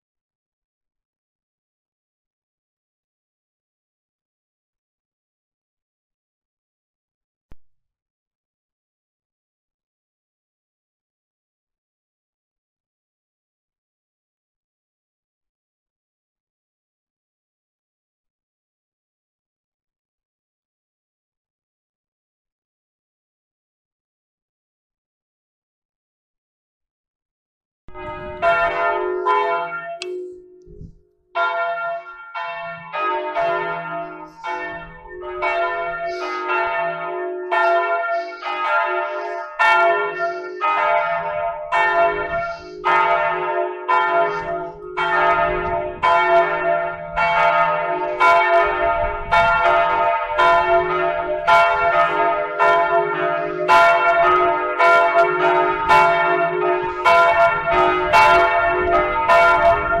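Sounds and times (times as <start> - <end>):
church bells pealing: 27.9 - 60.0.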